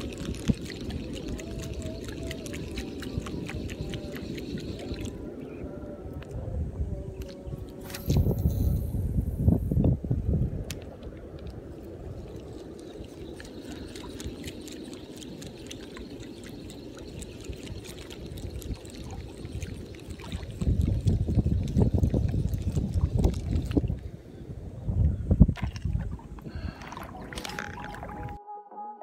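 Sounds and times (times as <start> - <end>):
water lapping and trickling: 0.0 - 6.5, 7.1 - 8.8, 10.1 - 24.3, 25.4 - 28.4
gusty low rumble: 6.0 - 12.3, 20.4 - 26.8.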